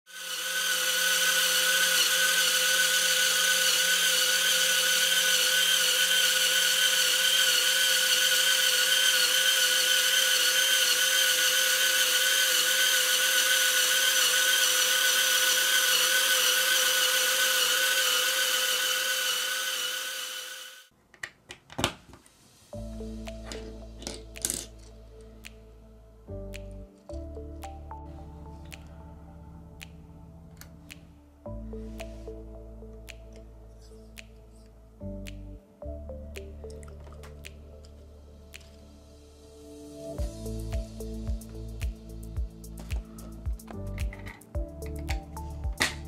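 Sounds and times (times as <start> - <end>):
motor and gearing whine: 0.1 - 20.9
whir of plastic pistons: 0.1 - 20.9.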